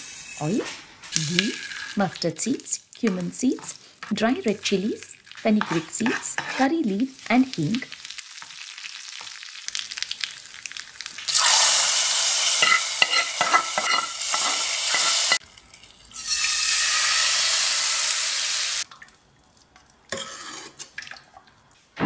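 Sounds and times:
hot oil sizzling and crackling: 0.0s - 20.9s
ladle stirring in a pot: 2.9s - 7.2s, 12.6s - 15.4s, 19.7s - 21.5s.

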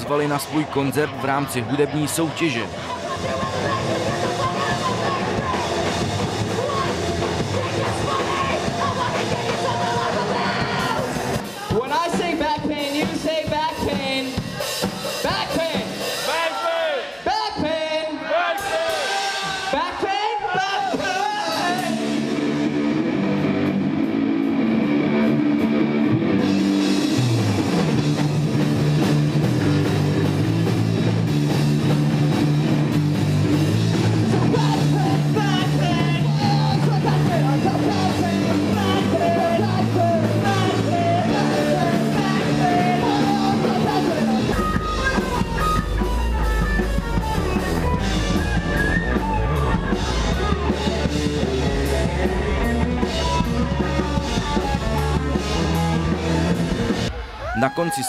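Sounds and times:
live rock band playing: 0.0s - 16.5s, 20.8s - 58.0s
person singing: 34.3s - 45.4s.

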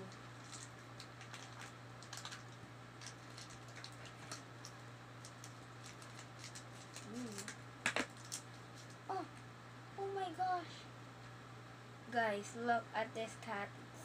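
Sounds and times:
plastic packaging crinkling: 0.3s - 9.0s
scissors snipping wrapper: 3.0s - 8.4s.

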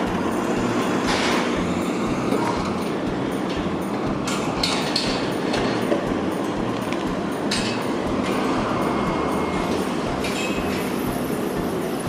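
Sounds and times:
electric train rumbling past: 0.0s - 12.0s.

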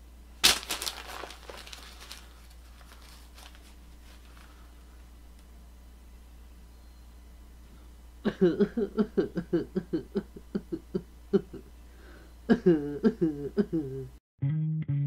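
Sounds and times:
person laughing: 8.2s - 11.7s, 12.5s - 14.2s.

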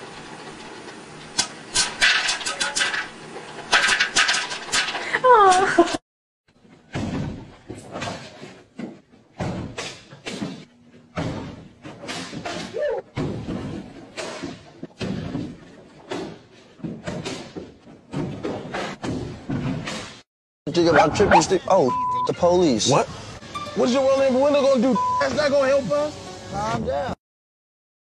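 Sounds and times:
thuds landing on gym mats: 9.4s - 20.2s.

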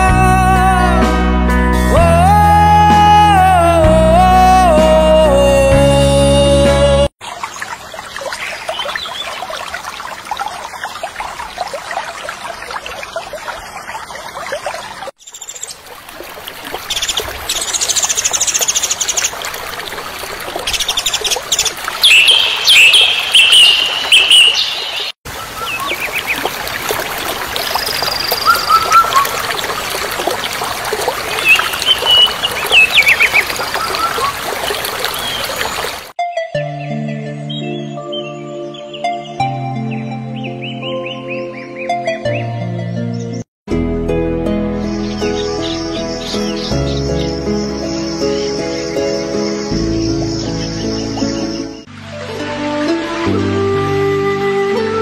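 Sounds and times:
birds chirping: 7.4s - 10.0s, 20.2s - 26.8s, 27.6s - 36.1s, 44.9s - 51.9s
water rushing over a weir: 15.8s - 36.1s.

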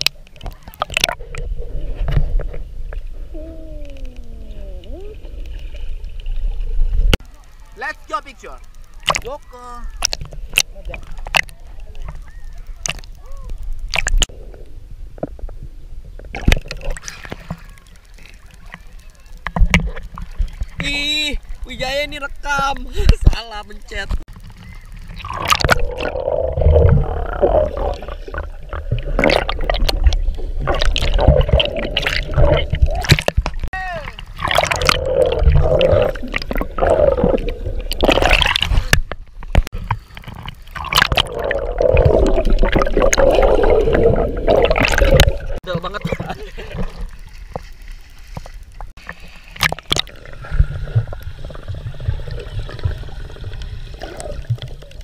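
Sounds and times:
underwater gurgling and bubbling: 0.0s - 7.2s, 24.3s - 45.6s, 49.0s - 55.0s
low rumble of water: 0.0s - 55.0s.

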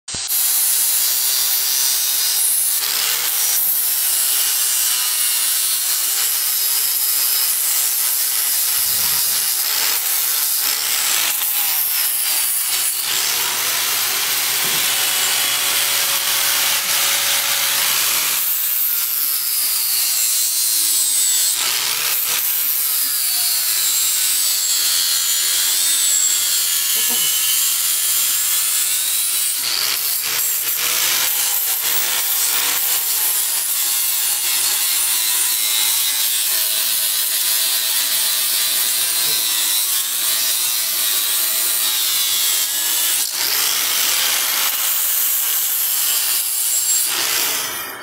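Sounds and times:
angle grinder grinding metal: 0.1s - 48.0s.

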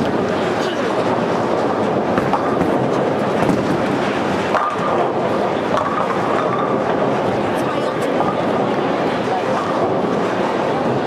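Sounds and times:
bowling balls rolling: 0.0s - 11.0s
bowling pins clattering: 1.0s - 7.5s.

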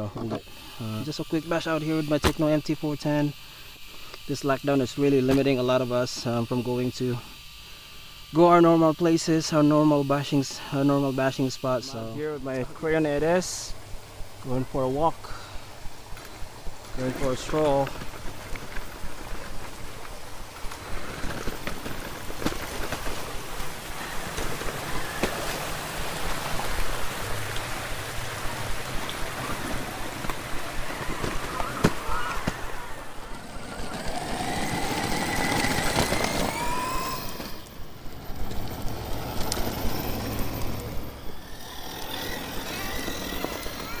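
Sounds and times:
rc truck rolling: 16.0s - 44.0s.

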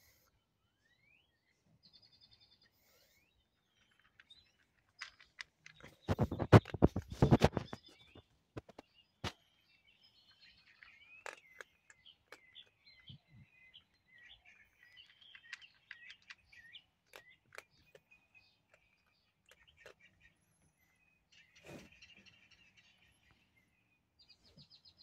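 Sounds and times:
small birds chirping: 0.0s - 25.0s
cat crunching dry kibble: 3.6s - 7.5s, 9.4s - 20.6s.

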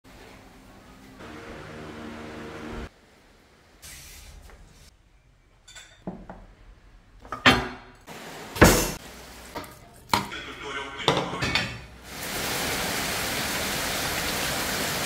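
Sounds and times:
dishes and utensils clinking: 5.6s - 6.5s, 7.2s - 12.0s.

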